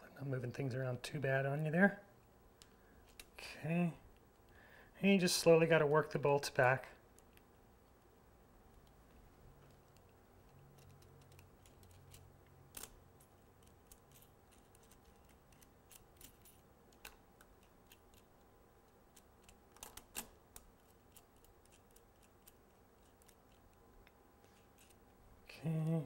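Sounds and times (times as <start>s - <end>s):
small metallic clicks: 9.6s - 25.0s.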